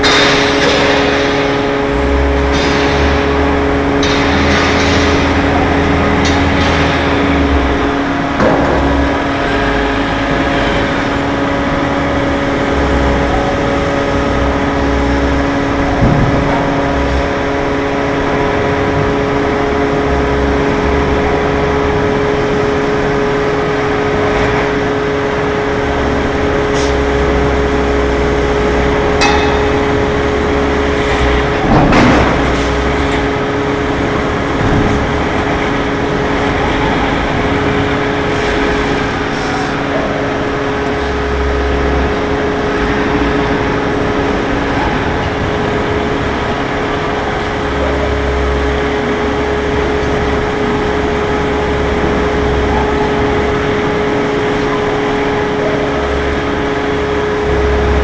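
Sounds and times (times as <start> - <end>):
metallic clanks: 0.0 - 20.8, 26.6 - 43.1
deep rumble: 0.0 - 58.0
hydraulic press machine whine: 0.0 - 58.0.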